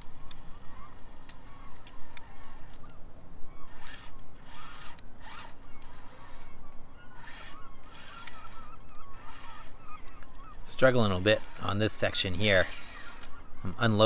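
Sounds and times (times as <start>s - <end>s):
toy car motor buzzing: 0.0s - 14.0s.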